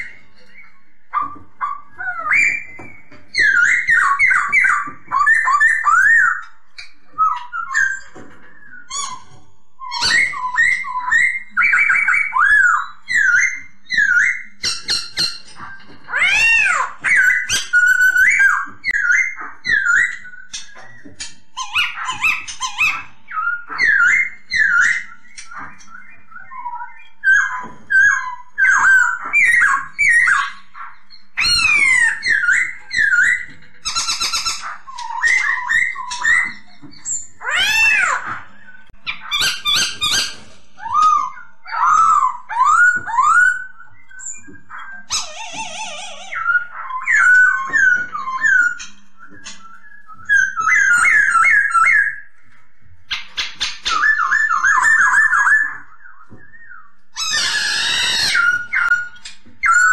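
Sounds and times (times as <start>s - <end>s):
bird whistling song: 0.0s - 59.9s.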